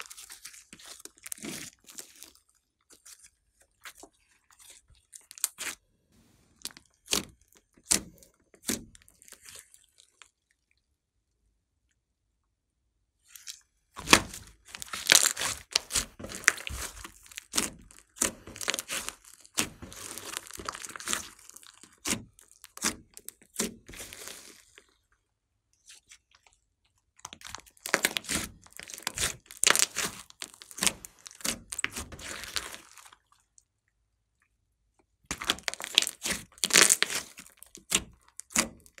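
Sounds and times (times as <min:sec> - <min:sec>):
sticky slime stretched by hand: 0:13.3 - 0:24.9, 0:27.2 - 0:33.3, 0:35.3 - 0:39.0.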